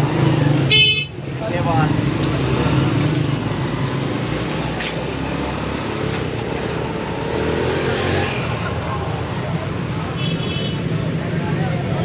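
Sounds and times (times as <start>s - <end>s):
motorcycle engines humming: 0.0s - 12.0s
traffic and people bustle: 0.0s - 12.0s.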